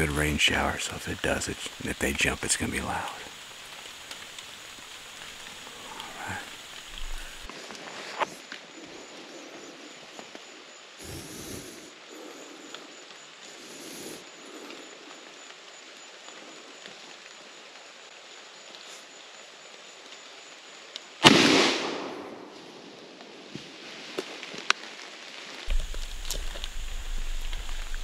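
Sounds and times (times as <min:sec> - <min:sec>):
shotgun shot: 0:21.2 - 0:22.5
faint rustling: 0:25.7 - 0:28.0.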